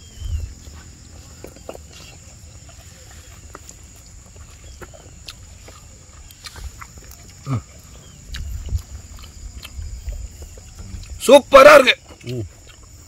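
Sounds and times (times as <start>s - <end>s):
lip-smacking and chewing clicks: 0.7s - 11.2s, 12.0s - 13.0s.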